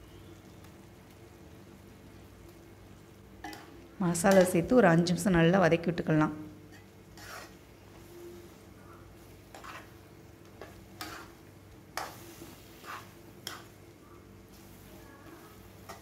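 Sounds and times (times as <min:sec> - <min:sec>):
food frying in oil: 0:00.0 - 0:16.0
metal spatula scraping pan: 0:06.7 - 0:07.6, 0:09.5 - 0:10.0, 0:10.6 - 0:13.8.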